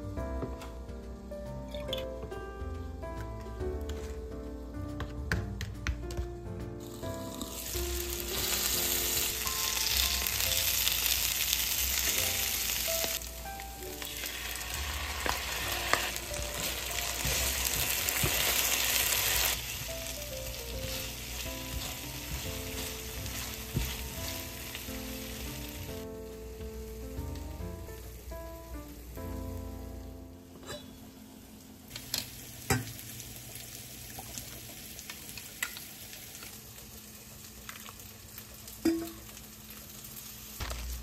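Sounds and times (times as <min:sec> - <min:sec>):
light background music: 0:00.0 - 0:33.1
food sizzling in oil: 0:06.8 - 0:26.6, 0:31.9 - 0:41.0.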